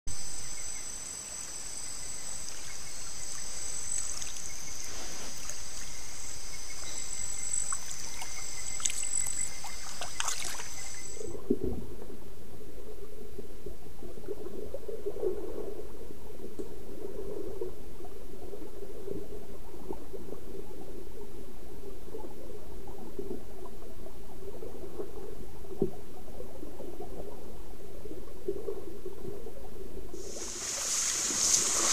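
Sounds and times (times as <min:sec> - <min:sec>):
nocturnal insects chorus: 0:00.2 - 0:11.3, 0:30.2 - 0:31.9
animal splashing through water: 0:02.5 - 0:11.3, 0:30.2 - 0:31.9
elephants sloshing in water: 0:02.5 - 0:11.3, 0:30.2 - 0:31.9.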